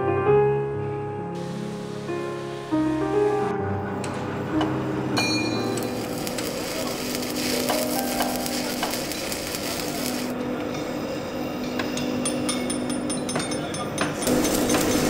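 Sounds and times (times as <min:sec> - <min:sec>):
torch hissing on steel: 0:05.5 - 0:10.3, 0:14.2 - 0:15.0.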